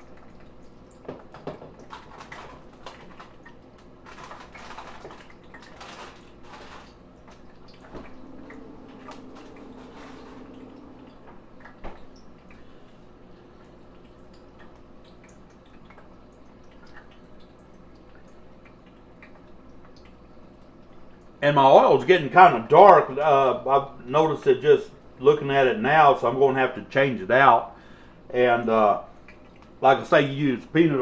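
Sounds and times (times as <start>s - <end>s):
oil bubbling and sizzling: 0.0s - 21.4s.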